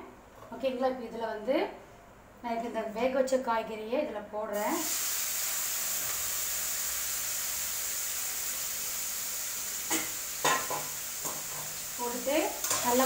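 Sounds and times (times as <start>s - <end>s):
vegetables sizzling in oil: 4.6s - 13.0s.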